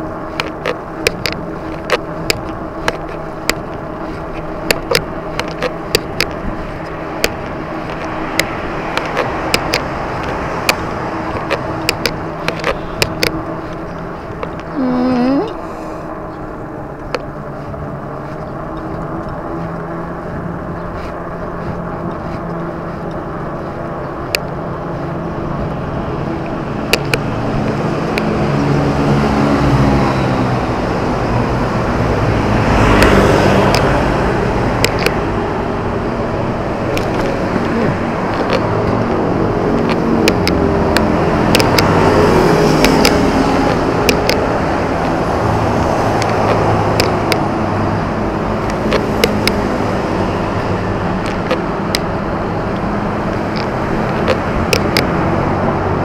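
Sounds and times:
road noise rush: 0.0 - 56.0
vehicle engines passing: 0.0 - 56.0
sharp clicks: 0.4 - 14.7, 26.4 - 28.3, 34.7 - 35.2, 36.8 - 39.2, 39.8 - 47.6, 48.6 - 49.7, 51.2 - 55.1.

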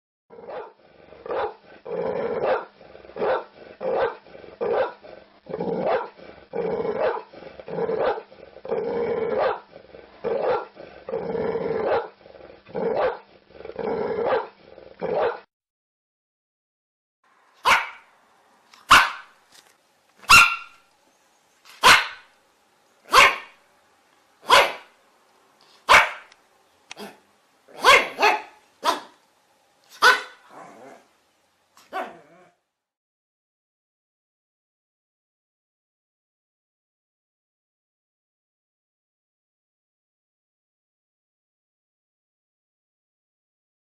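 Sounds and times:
dogs barking: 0.4 - 1.6, 2.4 - 5.0, 5.8 - 6.2, 7.0 - 7.3, 8.0 - 8.3, 9.4 - 9.7, 10.3 - 10.8, 12.9 - 13.3, 14.3 - 15.5, 17.6 - 18.1, 18.8 - 19.4, 20.2 - 20.8, 21.8 - 22.3, 23.1 - 23.6, 24.4 - 25.0, 25.8 - 29.2, 29.9 - 30.5.

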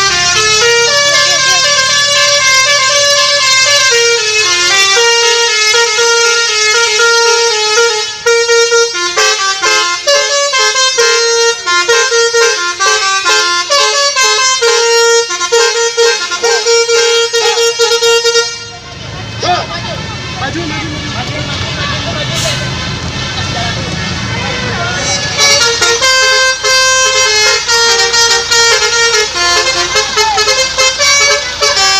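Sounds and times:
shrill multi-tone air horn tune: 0.0 - 18.9, 24.3 - 31.9.

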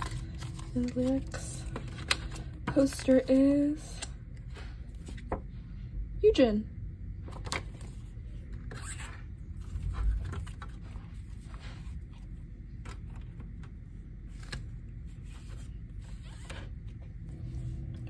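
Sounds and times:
paper rustling and sliding: 7.7 - 13.5, 14.2 - 18.0.

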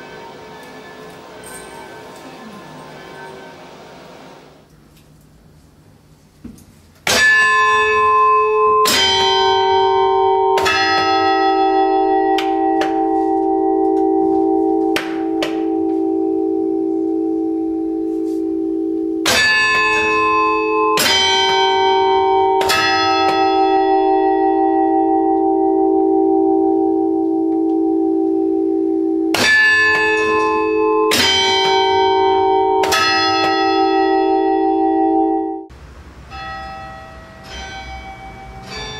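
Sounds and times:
church bell ringing: 0.0 - 4.5, 7.1 - 38.9.

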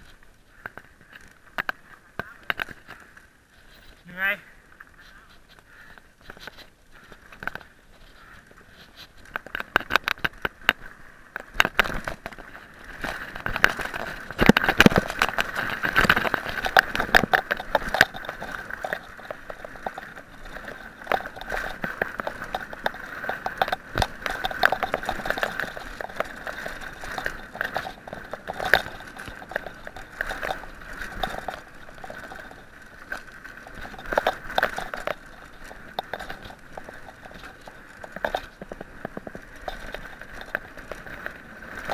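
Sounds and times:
mountain bike rattling: 0.0 - 41.9
tyres crunching on dry ground: 0.0 - 41.9.

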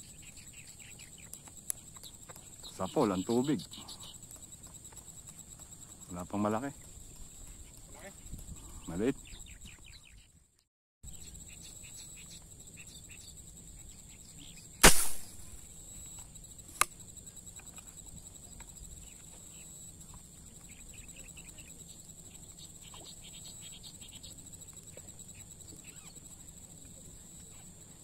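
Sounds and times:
faint chirping: 0.0 - 28.0
short sharp click: 14.8 - 15.4
loud gunshot crack: 14.8 - 15.6
steady high whine: 14.8 - 17.0.

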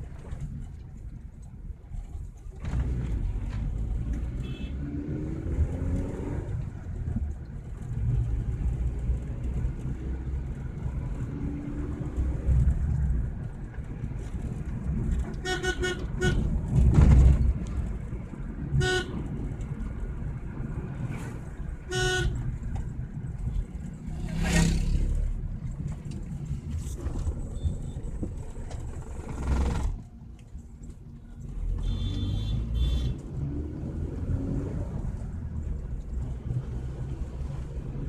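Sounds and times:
car engine and road rumble: 0.0 - 38.0
vehicle horn short toots: 4.4 - 4.8, 15.4 - 16.5, 18.8 - 19.2, 21.9 - 22.4, 31.8 - 33.2.

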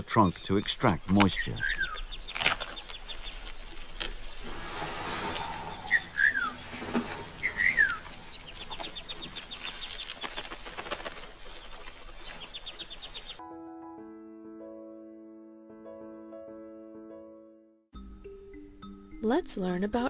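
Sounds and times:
high-pitched bird trill: 5.5 - 9.0.

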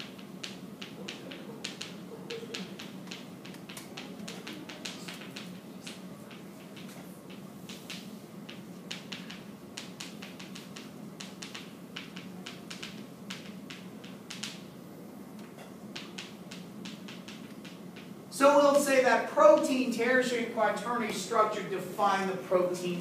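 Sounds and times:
chalk tapping on chalkboard: 0.0 - 14.6, 15.9 - 18.1
low room hum: 0.0 - 23.0.

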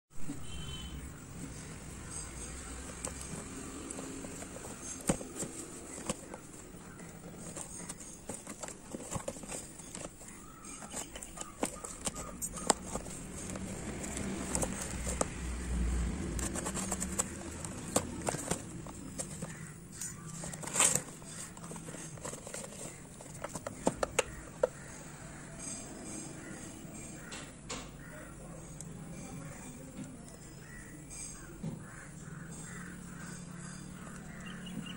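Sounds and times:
fingers tapping on cardboard box: 2.1 - 24.9.

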